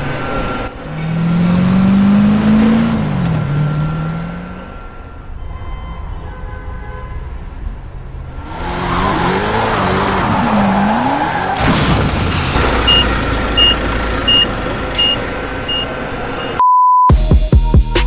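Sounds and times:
car engine revving: 0.0 - 5.1, 8.3 - 16.2
car crash: 0.0 - 5.6, 8.5 - 15.7
reversing alarm beeps: 12.9 - 17.1.

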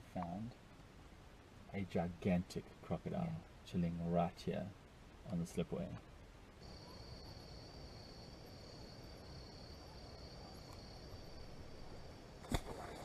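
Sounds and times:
cricket-like insect trill: 6.6 - 13.0.

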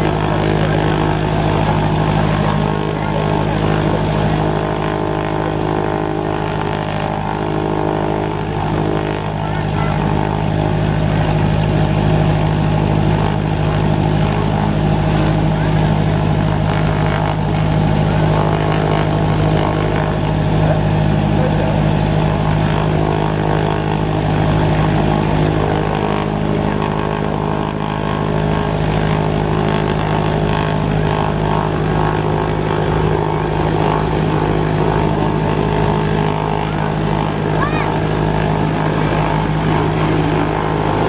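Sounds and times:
propeller plane engine droning: 0.0 - 41.0.

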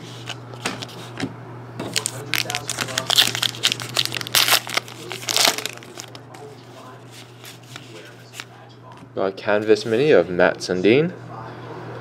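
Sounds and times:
card pack wrapper tearing: 1.9 - 6.2.

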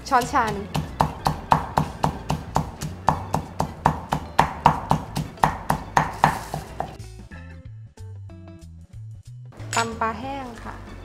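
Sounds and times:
pestle pounding in stone mortar: 0.0 - 7.0.

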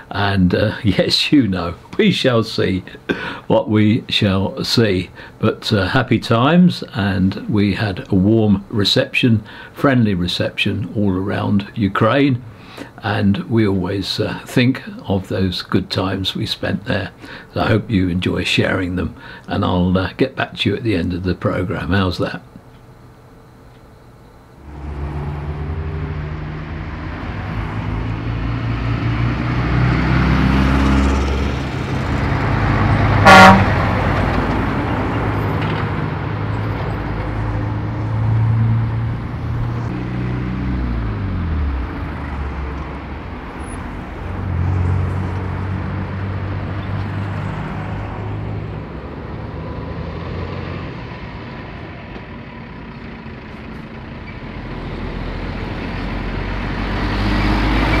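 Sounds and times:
road traffic passing: 0.0 - 6.4, 9.4 - 9.8, 22.5 - 58.0
engine slowing down: 24.6 - 33.2, 33.8 - 58.0
vehicle horn blast: 33.2 - 33.9.

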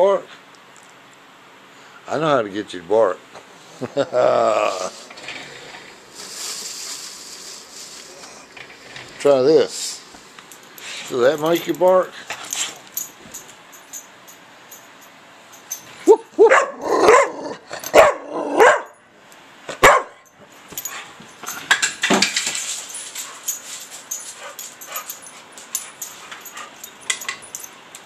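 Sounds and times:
dog barking: 16.1 - 19.0, 19.8 - 20.2.

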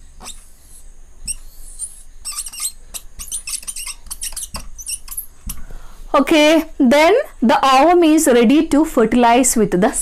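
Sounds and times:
marker squeaking on whiteboard: 0.0 - 5.6.

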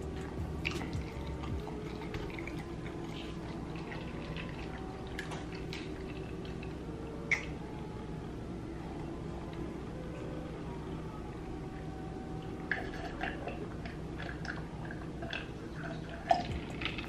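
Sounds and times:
steady low hum: 0.0 - 17.0
wet chewing clicks and smacks: 0.1 - 6.7.

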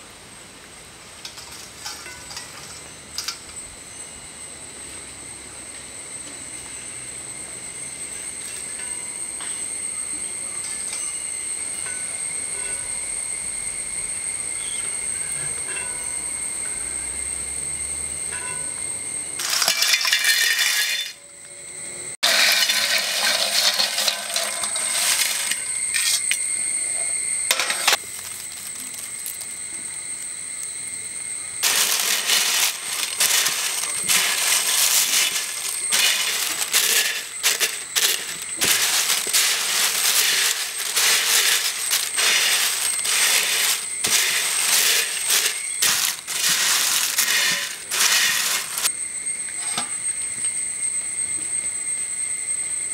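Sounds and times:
fried snacks crackling on steel plate: 19.4 - 21.1, 22.2 - 26.3, 31.6 - 48.9.

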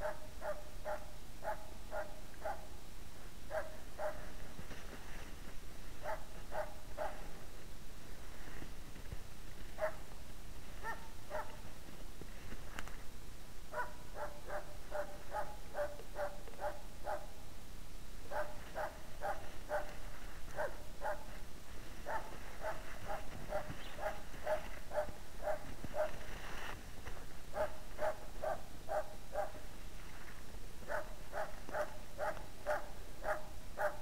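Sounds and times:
dog barking rapidly: 0.0 - 2.7, 3.5 - 4.3, 6.0 - 7.3, 9.8 - 10.0, 10.8 - 11.6, 13.7 - 17.3, 18.3 - 19.9, 20.6 - 21.3, 22.0 - 26.2, 27.5 - 29.6, 30.9 - 34.0.

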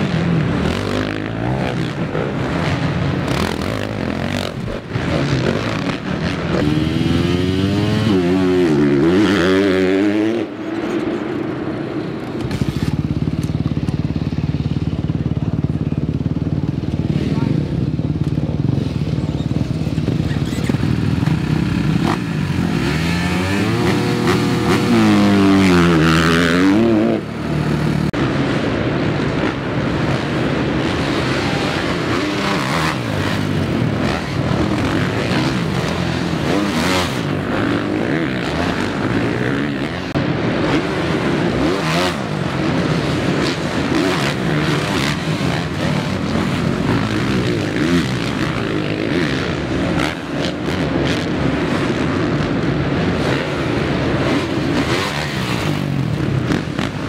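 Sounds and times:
dirt bike engines revving: 0.0 - 57.0.

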